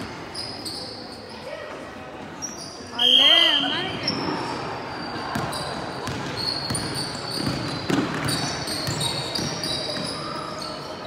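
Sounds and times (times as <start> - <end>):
sneakers squeaking on floor: 0.0 - 11.0
basketball bouncing on hardwood: 5.3 - 10.1.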